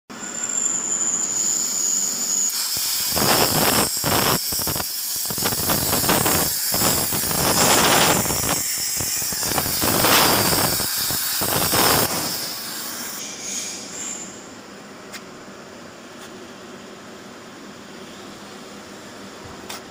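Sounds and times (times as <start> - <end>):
thin high whine: 0.1 - 15.1
cutting torch hissing: 0.2 - 14.4.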